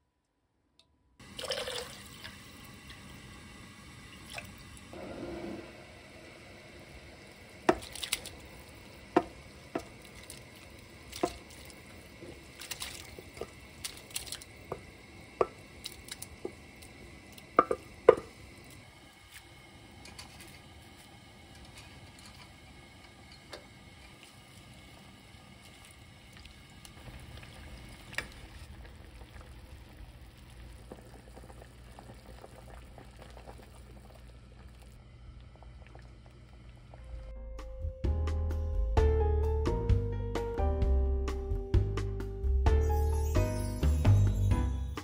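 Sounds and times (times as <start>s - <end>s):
broth dripping and splashing: 7.2s - 18.8s.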